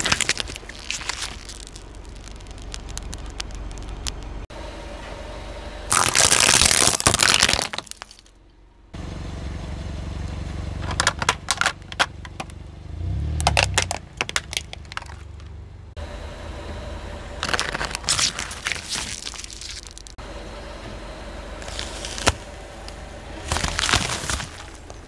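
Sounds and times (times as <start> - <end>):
plastic toy cracking under tyre: 0.0 - 4.4, 5.9 - 8.3, 13.4 - 15.4, 17.4 - 20.2, 23.5 - 25.0.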